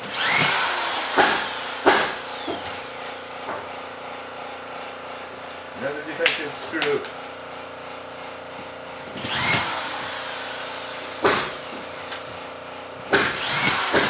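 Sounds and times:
screw gun motor whine: 0.0 - 2.9, 9.2 - 11.9, 13.1 - 14.0.

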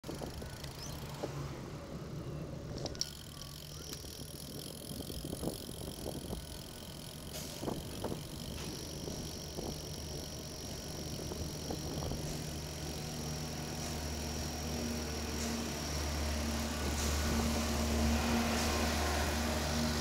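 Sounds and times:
bike clicks and knocks: 0.0 - 1.4, 2.7 - 16.2
tyre and wind rumble: 3.6 - 13.8.

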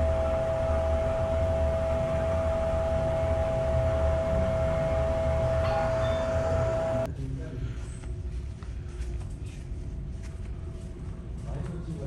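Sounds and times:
machinery whine: 0.0 - 7.1
low machinery rumble: 0.0 - 12.0.

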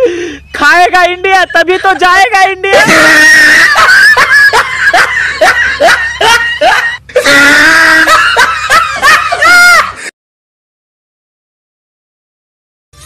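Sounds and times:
person wailing comically: 2.6 - 4.3, 5.8 - 10.1.

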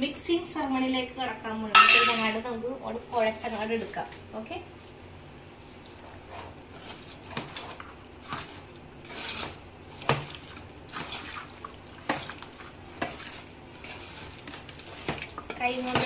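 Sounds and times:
hand squishing wet marinade: 4.8 - 16.0.

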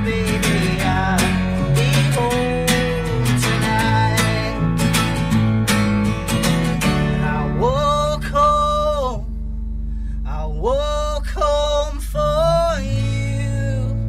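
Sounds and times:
man singing: 0.0 - 4.9, 6.9 - 9.3, 10.2 - 14.0
acoustic guitar strumming: 0.0 - 14.0.

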